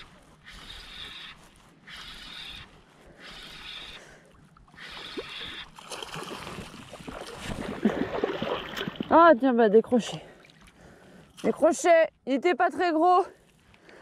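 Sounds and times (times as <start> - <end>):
fish splashing at surface: 4.9 - 9.2.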